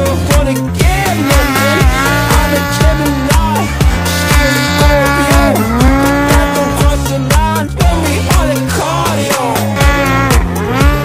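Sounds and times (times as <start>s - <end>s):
electronic music with beat: 0.0s - 11.0s.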